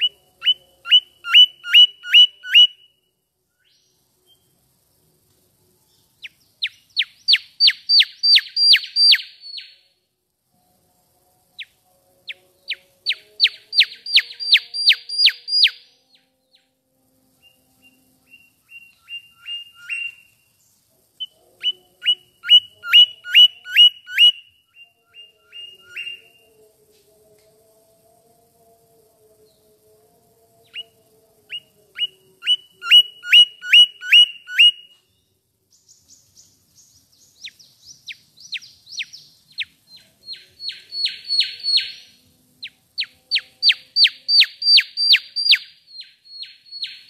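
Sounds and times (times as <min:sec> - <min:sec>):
bird whistling down-slurred notes: 0:00.0 - 0:03.0, 0:06.6 - 0:09.8, 0:12.3 - 0:16.6, 0:17.4 - 0:20.4, 0:21.2 - 0:26.5, 0:31.5 - 0:35.1, 0:37.4 - 0:47.0.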